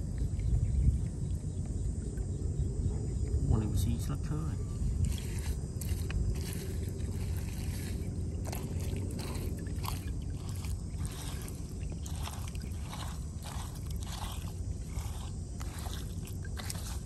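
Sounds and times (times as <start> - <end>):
low rumble: 0.0 - 17.0
fingers squishing through wet mud: 5.0 - 17.0.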